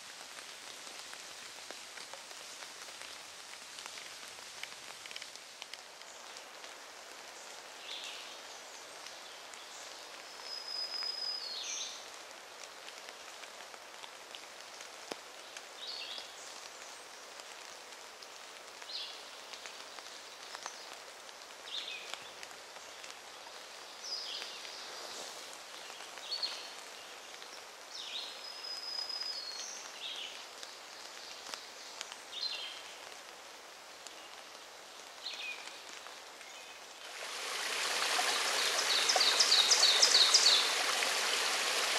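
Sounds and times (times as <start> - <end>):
steady background hiss: 0.0 - 41.9
songbird calling: 37.3 - 41.9.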